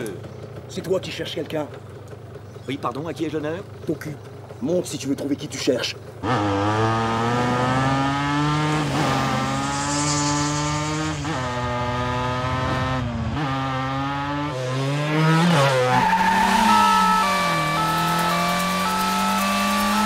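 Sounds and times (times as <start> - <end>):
motorcycle engine accelerating: 0.0 - 20.0
brief high squeal: 9.0 - 12.0.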